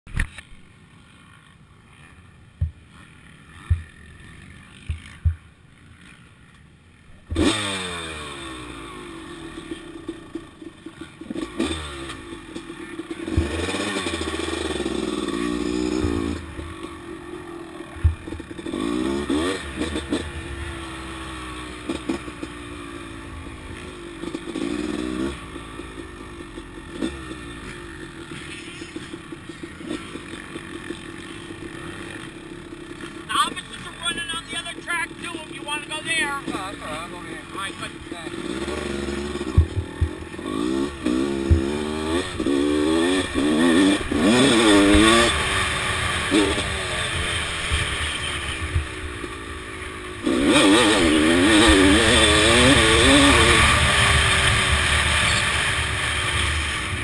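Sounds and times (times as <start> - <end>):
two-stroke motorcycle engine revving: 0.1 - 57.0
sharp knocks: 3.6 - 4.0.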